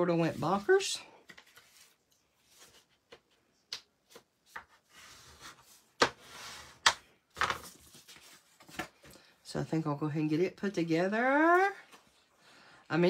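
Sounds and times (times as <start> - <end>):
paper rustling: 0.1 - 6.7, 7.3 - 9.1.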